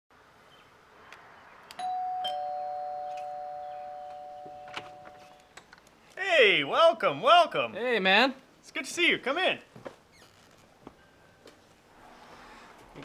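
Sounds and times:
two-note doorbell chime: 1.8s - 5.3s.

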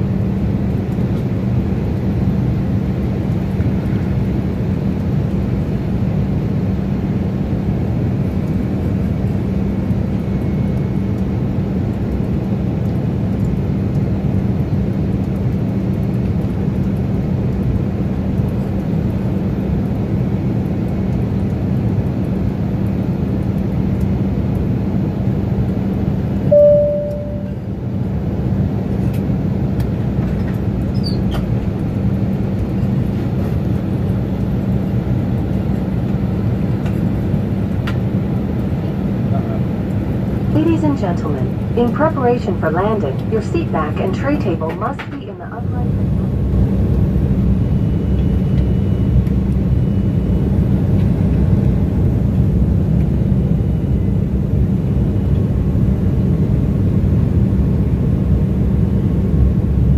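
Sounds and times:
rush of engines and airflow: 0.0s - 59.9s
low hum: 25.4s - 59.9s
short tone: 26.5s - 27.6s.

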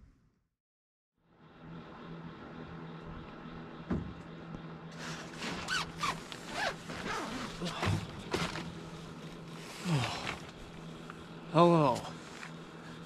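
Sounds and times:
low hum: 1.2s - 13.0s
zipper rasping: 5.0s - 7.6s.

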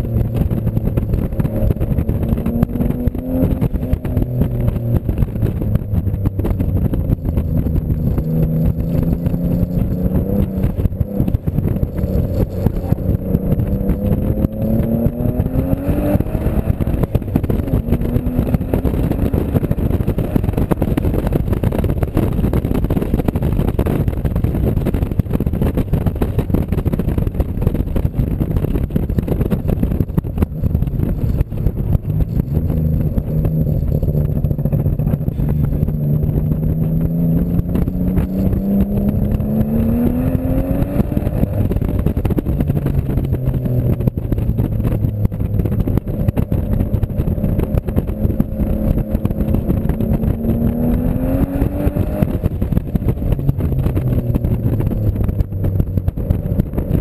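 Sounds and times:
car engine accelerating: 0.0s - 57.0s
road and wind rumble: 0.0s - 57.0s.

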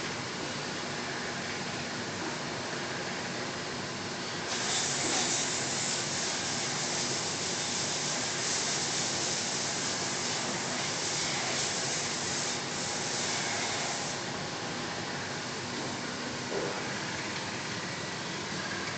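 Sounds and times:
conveyor and motors running: 0.0s - 18.9s
glaze spray hissing: 4.5s - 14.2s.

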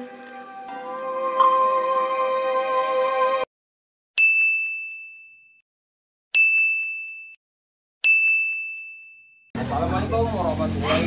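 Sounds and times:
intro music: 0.0s - 3.4s
notification bell ding: 1.4s - 2.0s, 4.2s - 5.6s, 6.4s - 7.4s, 8.0s - 9.5s.

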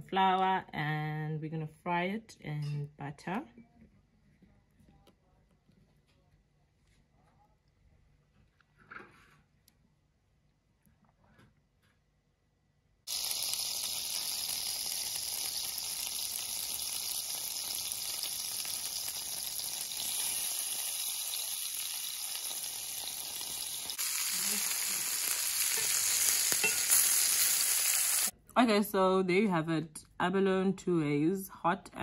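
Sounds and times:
food sizzling in a pan: 13.1s - 28.3s.

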